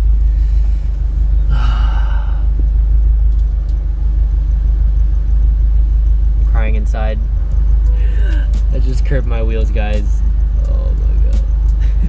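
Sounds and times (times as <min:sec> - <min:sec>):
car engine idling: 0:00.0 - 0:12.0
person sighing: 0:01.5 - 0:02.6.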